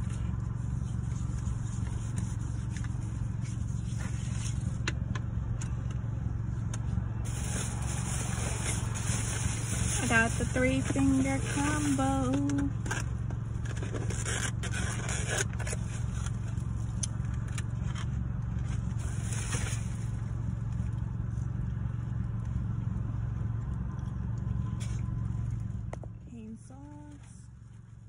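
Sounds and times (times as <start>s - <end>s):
car hum: 0.0s - 28.0s
paper bag and box rustling: 7.3s - 12.5s.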